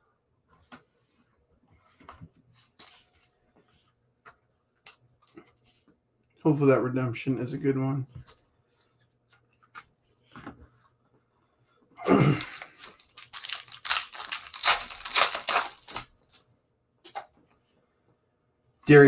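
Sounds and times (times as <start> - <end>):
foil wrapper tearing and crinkling: 12.5 - 16.4.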